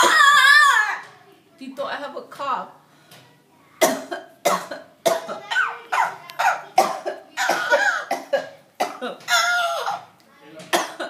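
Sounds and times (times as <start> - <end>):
person coughing: 6.4 - 10.1, 10.8 - 11.0.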